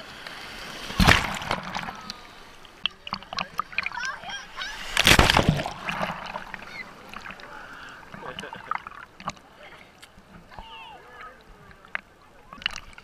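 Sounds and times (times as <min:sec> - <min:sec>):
waves splashing: 0:00.0 - 0:13.0
swimmers crying out: 0:03.7 - 0:08.6, 0:10.4 - 0:11.6.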